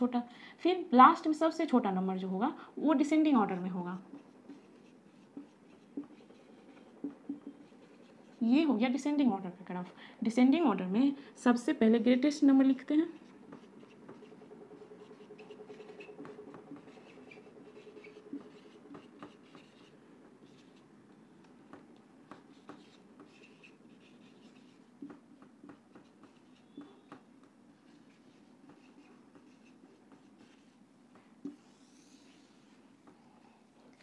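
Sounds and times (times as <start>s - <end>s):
marker writing on whiteboard: 3.1s - 8.7s, 13.0s - 21.0s, 21.6s - 33.2s
marker taps: 4.1s - 7.9s, 21.4s - 27.6s.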